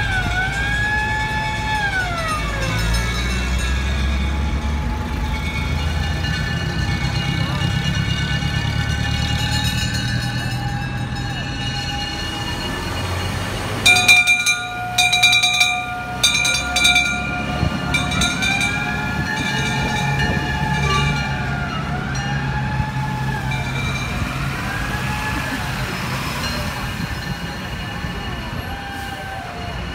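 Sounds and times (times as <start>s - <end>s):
fire engine bell clanging: 0.0s - 29.9s
sirens wailing: 0.0s - 29.9s
steady ringing tone: 1.3s - 22.4s.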